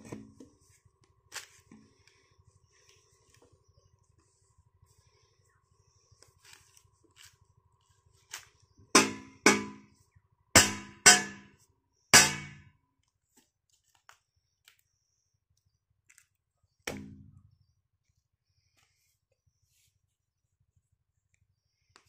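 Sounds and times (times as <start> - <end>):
hoe knocking on metal pipe: 9.0 - 9.9, 10.6 - 11.5, 12.2 - 12.6.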